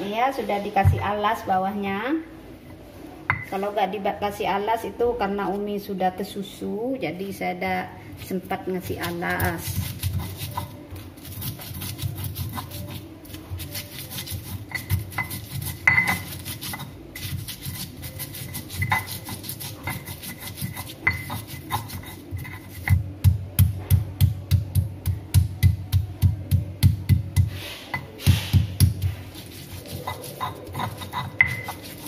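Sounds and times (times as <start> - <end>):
stone pestle grinding in mortar: 8.2 - 24.7, 25.3 - 32.0.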